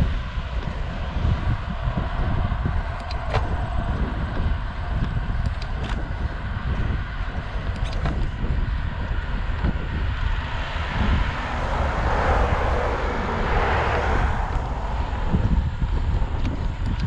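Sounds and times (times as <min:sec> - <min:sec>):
wind rumble on microphone: 0:00.0 - 0:17.0
motor vehicle passing: 0:09.4 - 0:17.0.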